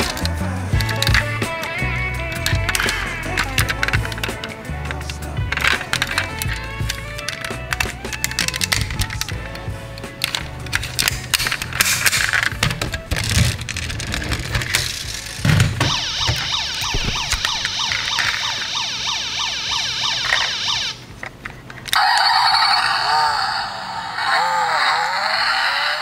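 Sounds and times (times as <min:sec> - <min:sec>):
clicks and knocks: 0:00.0 - 0:09.4, 0:10.0 - 0:18.7
noisy electronic sound: 0:00.0 - 0:21.1
toy siren yelping: 0:15.8 - 0:21.0, 0:21.9 - 0:26.0.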